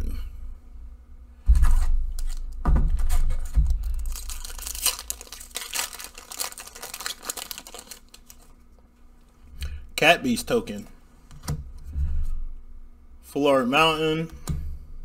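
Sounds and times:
foil wrapper crinkling and tearing: 1.6 - 2.6, 3.6 - 8.6.

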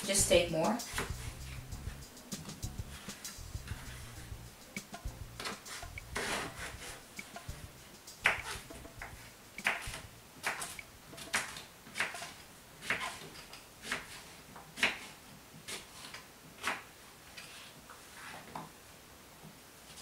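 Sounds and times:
knife chopping on wooden board: 0.9 - 1.2, 8.2 - 13.2.

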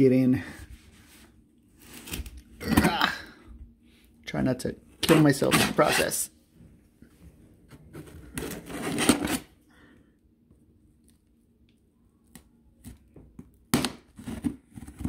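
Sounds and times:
knife cutting tape and cardboard: 8.4 - 9.5.

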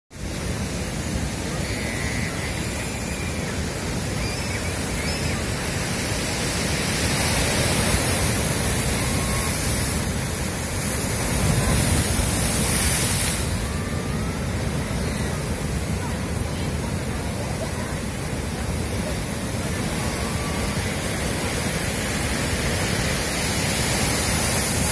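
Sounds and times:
waves breaking over rocks: 0.2 - 24.9.

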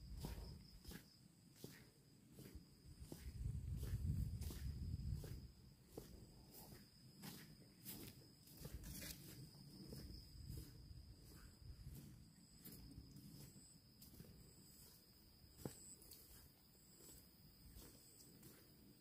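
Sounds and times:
footsteps on dirt path: 0.0 - 19.0.

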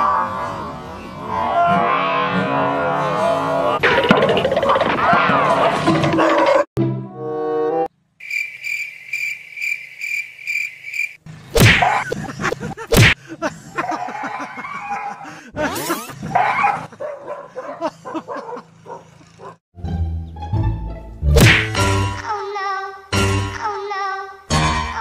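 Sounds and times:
high cricket-like chirp: 8.2 - 11.2.

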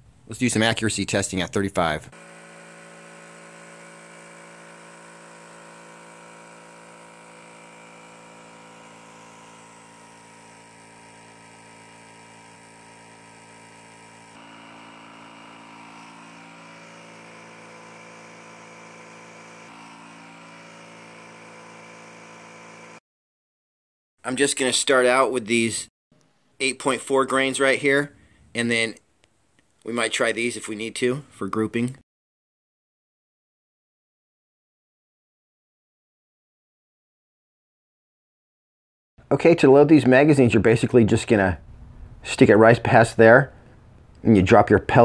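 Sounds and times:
air compressor humming: 2.1 - 23.0.

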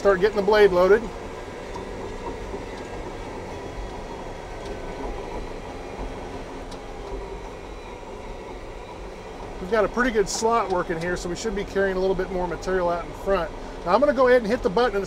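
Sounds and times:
bulldozer engine and tracks droning: 0.0 - 15.0.

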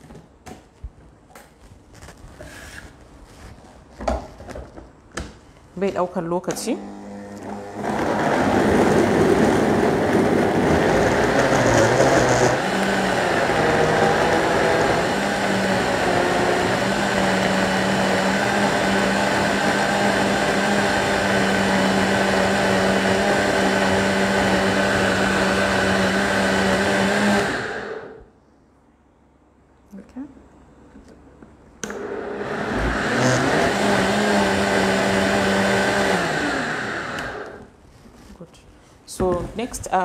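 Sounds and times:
blender running at high speed: 6.8 - 28.2, 31.9 - 37.7.

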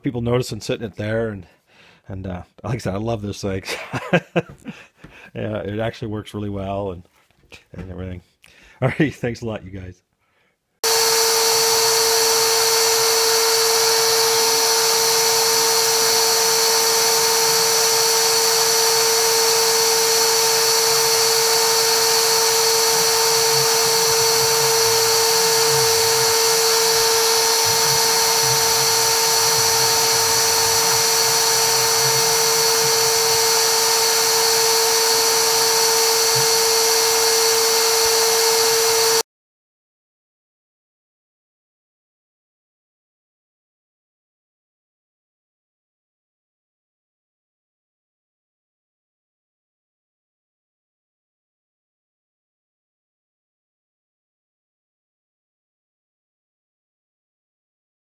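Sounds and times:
router engraving wood whine: 10.8 - 39.2.

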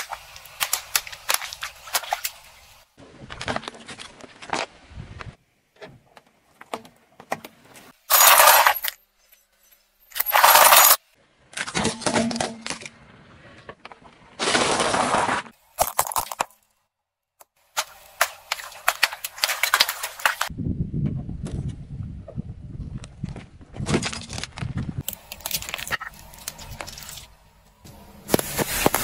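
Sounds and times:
objects crushed under tyre: 10.2 - 16.6.

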